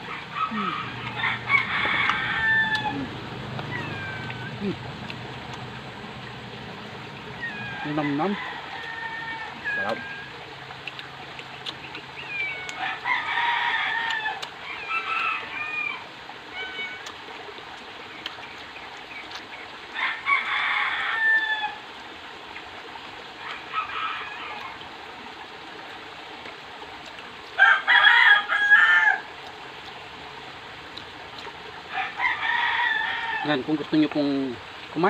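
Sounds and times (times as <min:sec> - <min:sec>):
roosters crowing: 0:00.0 - 0:04.6, 0:06.0 - 0:10.6, 0:12.2 - 0:17.0, 0:19.9 - 0:21.9, 0:23.5 - 0:24.8, 0:27.6 - 0:29.3, 0:31.9 - 0:33.6.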